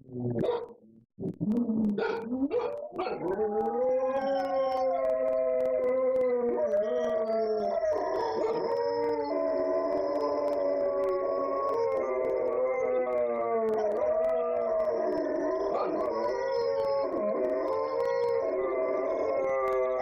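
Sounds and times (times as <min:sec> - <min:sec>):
dogs barking: 0:00.4 - 0:00.8, 0:02.0 - 0:03.3, 0:15.7 - 0:16.2
dogs howling: 0:02.0 - 0:20.0.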